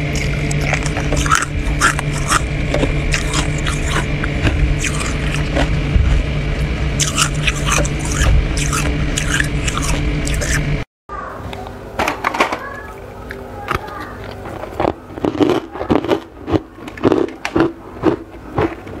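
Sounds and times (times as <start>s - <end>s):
freezer frost crunching: 0.0s - 10.7s, 12.8s - 19.0s
low hum: 0.0s - 11.9s.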